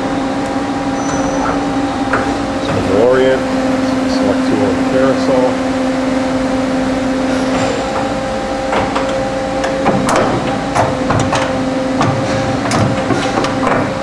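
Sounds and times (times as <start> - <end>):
machine humming: 0.0 - 14.0
mechanical clunks and clacks: 1.0 - 3.2, 7.3 - 14.0.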